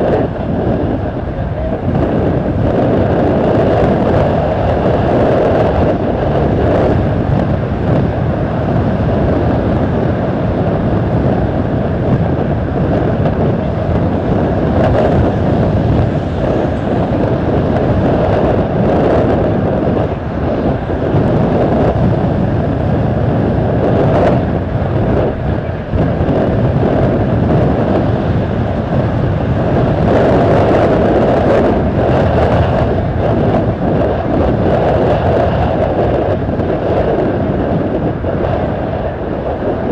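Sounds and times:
jet engines rumbling: 0:00.0 - 0:39.9
wind buffeting microphone: 0:00.0 - 0:39.9.

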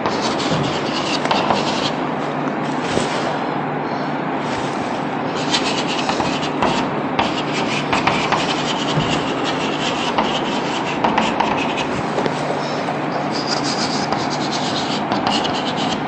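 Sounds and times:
chalk scratching on blackboard: 0:00.1 - 0:02.0, 0:05.4 - 0:12.1, 0:13.3 - 0:16.0.

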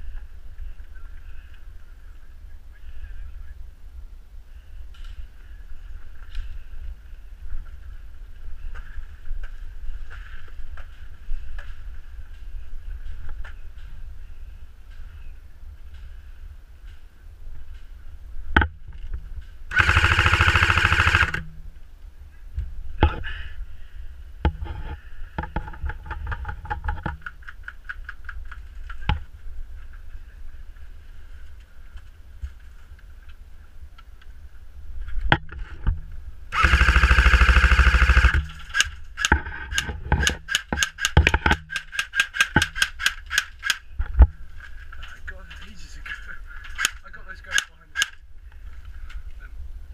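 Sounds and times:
airsoft gun full-auto bursts: 0:19.7 - 0:21.5, 0:36.5 - 0:43.8.

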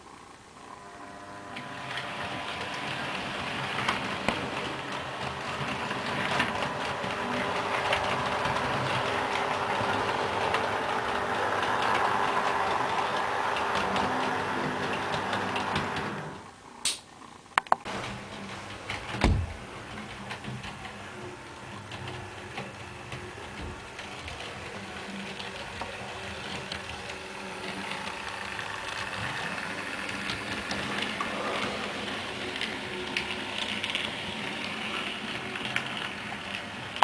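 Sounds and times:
model train running on track: 0:00.8 - 0:16.4, 0:17.9 - 0:37.0.

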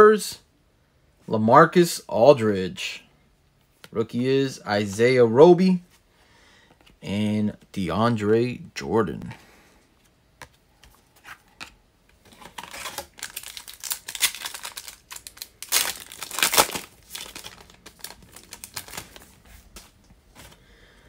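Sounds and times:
foil wrapper tearing and crinkling: 0:12.3 - 0:19.3.

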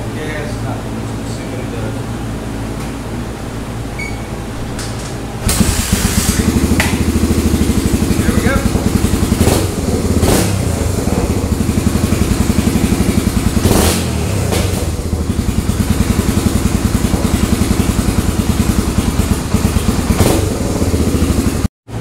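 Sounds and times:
motorcycle engine running: 0:03.2 - 0:22.0.

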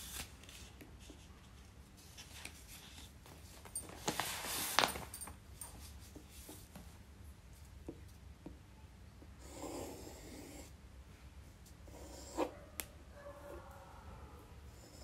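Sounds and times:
pencil scratching on paper: 0:09.4 - 0:10.7, 0:11.9 - 0:12.5.

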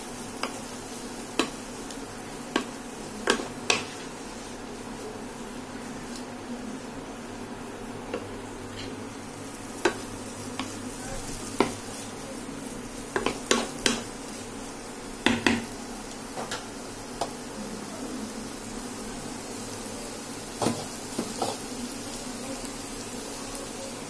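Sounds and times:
frying sizzle: 0:00.0 - 0:24.0
utensil clacking against pan: 0:01.4 - 0:01.6, 0:02.5 - 0:04.0, 0:13.1 - 0:14.1.

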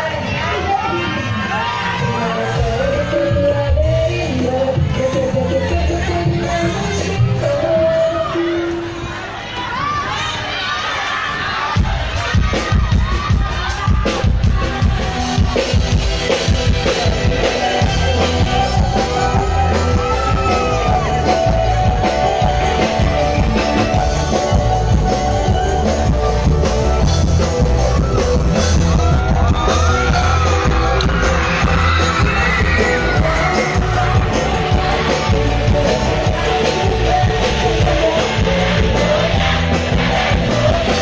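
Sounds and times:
person singing: 0:00.0 - 0:09.0, 0:12.4 - 0:41.0
live band music: 0:11.8 - 0:41.0.

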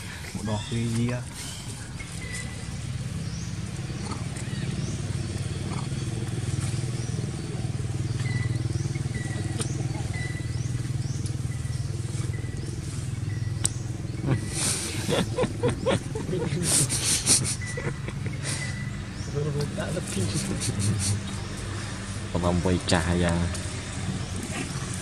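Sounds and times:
engine running steadily: 0:00.0 - 0:25.0.

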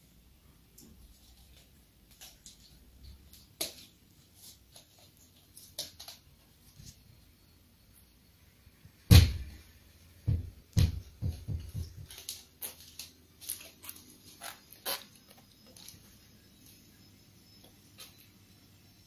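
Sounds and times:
knocks and thumps: 0:10.2 - 0:12.1.

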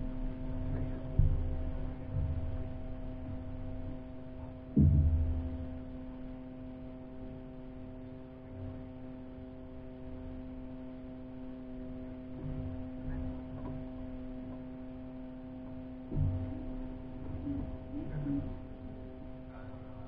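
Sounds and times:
steady hum: 0:00.0 - 0:20.0
faint low thuds: 0:00.4 - 0:06.0, 0:16.0 - 0:19.0.

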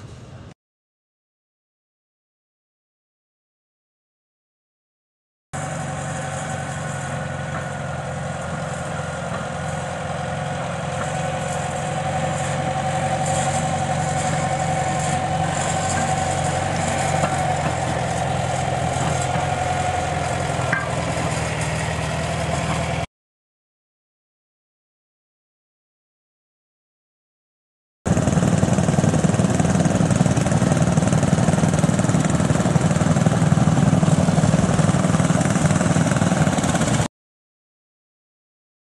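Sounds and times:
tractor engine running: 0:05.6 - 0:23.1, 0:28.1 - 0:37.1.

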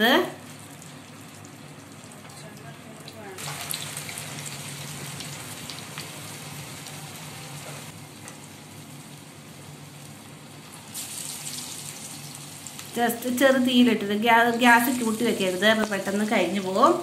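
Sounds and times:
fritters sizzling in oil: 0:00.4 - 0:13.7.

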